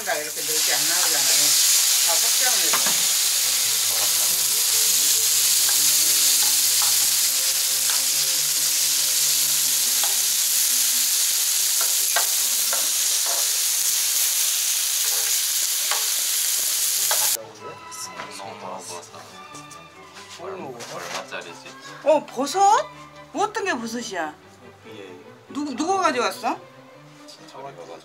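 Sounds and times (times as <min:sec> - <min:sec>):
meat sizzling on a griddle: 0:00.0 - 0:17.4.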